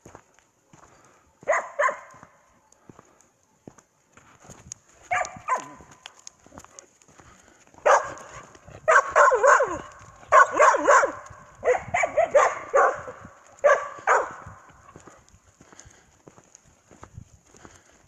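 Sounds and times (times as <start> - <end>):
dog barking and yipping: 1.4 - 2.2, 5.1 - 5.9, 7.8 - 14.6.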